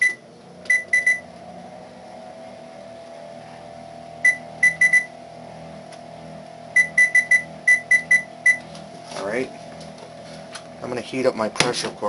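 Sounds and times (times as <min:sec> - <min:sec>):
control panel beeping: 0:00.0 - 0:01.3, 0:04.2 - 0:05.1, 0:06.8 - 0:08.7
steady range hum: 0:00.0 - 0:12.0.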